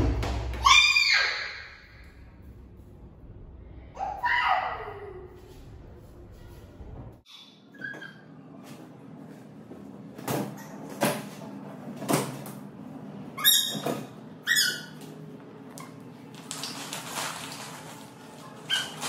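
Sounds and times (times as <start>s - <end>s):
plastic balls rustling: 16.3s - 19.0s
rubbery squeaks: 18.5s - 19.0s.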